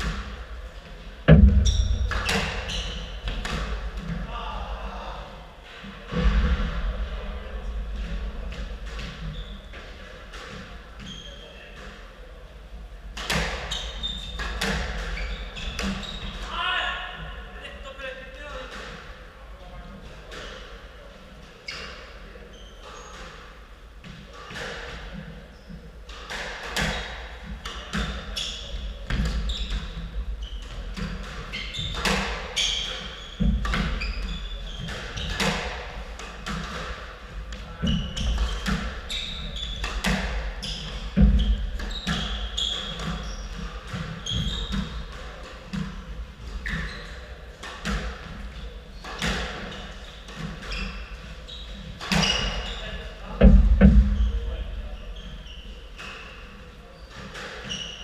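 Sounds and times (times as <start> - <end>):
heavy thuds: 1.2 - 4.3, 53.4 - 55.1
shoe squeaks on wooden floor: 1.3 - 3.4, 11.0 - 11.7, 13.6 - 16.5, 21.6 - 23.4, 27.8 - 35.7, 37.7 - 45.0, 46.5 - 47.4, 48.5 - 58.0
ball smacking court walls: 1.3 - 4.2.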